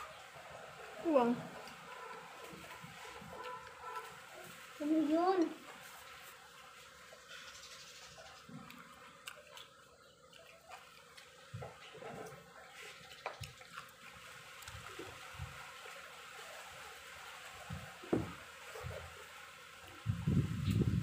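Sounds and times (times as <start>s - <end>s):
person chewing vegetables: 0.0s - 4.6s, 8.2s - 15.6s.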